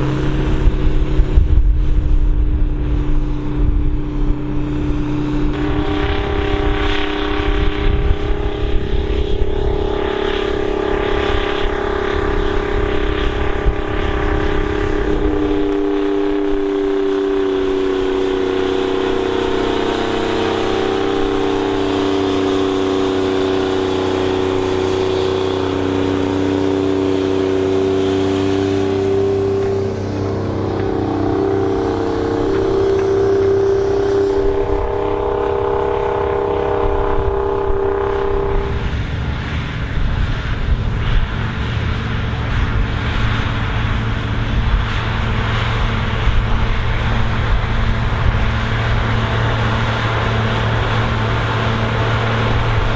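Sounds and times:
deep low rumble: 0.0 - 52.9
tractor engine droning: 0.0 - 52.9.

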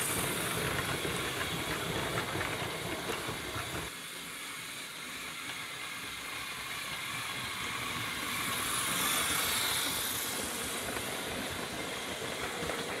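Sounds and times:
toy train rolling on track: 0.0 - 13.0.

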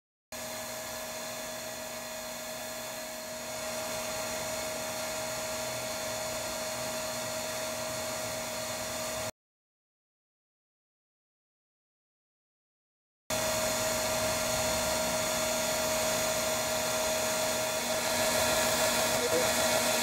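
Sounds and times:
vacuum motor whining: 0.4 - 9.3, 13.3 - 20.0.

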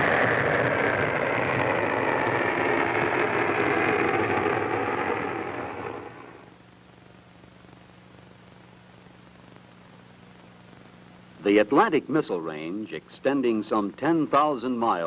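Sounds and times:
rocket motor rushing: 0.0 - 6.5
faint low hum: 1.1 - 15.0.

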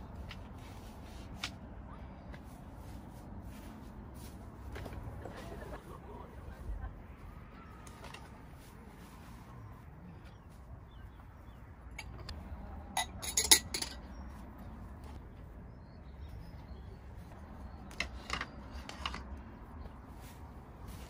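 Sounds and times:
hard objects clinking together: 13.0 - 14.1.

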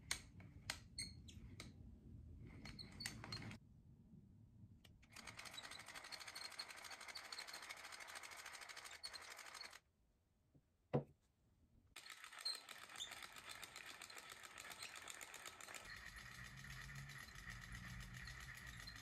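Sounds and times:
knitting machine clicking: 5.1 - 9.8, 12.0 - 19.0.

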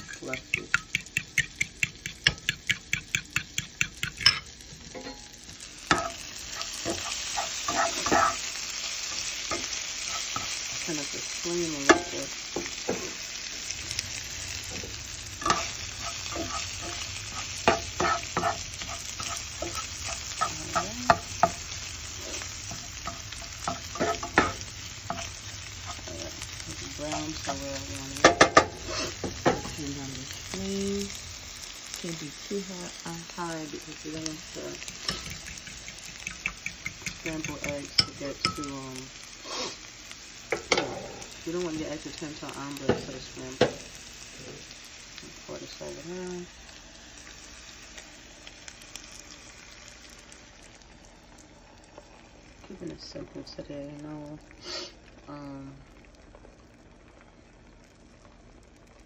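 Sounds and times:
whisk clicking in bowl: 0.0 - 4.4, 34.9 - 38.1
spatula scraping a pan: 0.0 - 5.3, 5.9 - 10.8, 14.7 - 26.5, 34.7 - 38.6
meat sizzling in a pan: 0.0 - 59.0.

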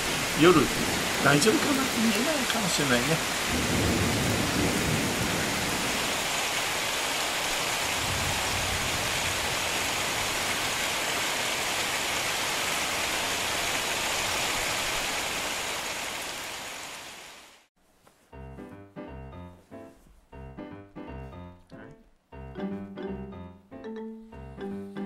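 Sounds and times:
thunder rumbling: 0.0 - 10.9
heavy rain hissing: 0.0 - 17.7.

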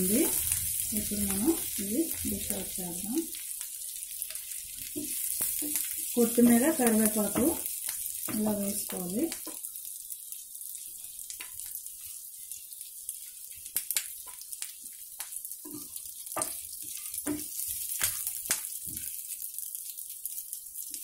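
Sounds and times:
oil sizzling in a pan: 0.0 - 21.0
spatula scraping a pan: 15.7 - 19.2.

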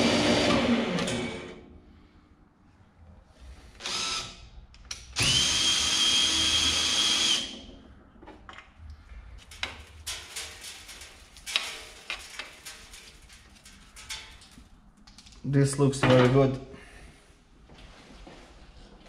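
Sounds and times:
cordless drill whining: 3.8 - 4.4, 5.2 - 7.7
metal clicking and rattling: 9.4 - 15.5.

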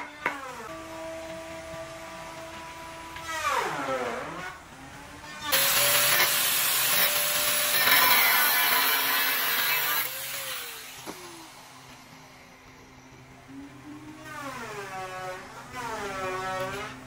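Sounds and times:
angle grinder cutting steel rod: 5.5 - 11.5
grinder disc spinning down: 5.5 - 13.2.

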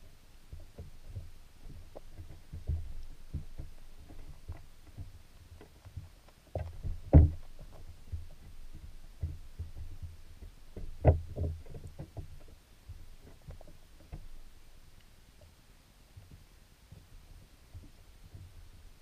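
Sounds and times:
muffled underwater thumps: 0.4 - 14.3.

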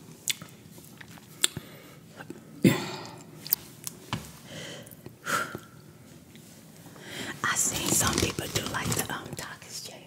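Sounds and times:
snack sticks crunching: 0.2 - 2.4.

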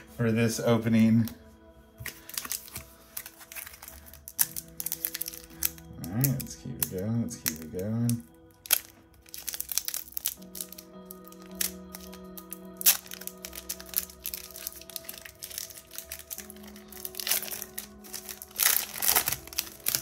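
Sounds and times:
background music sustained notes: 0.0 - 20.0
foil pack crinkling: 2.0 - 20.0.

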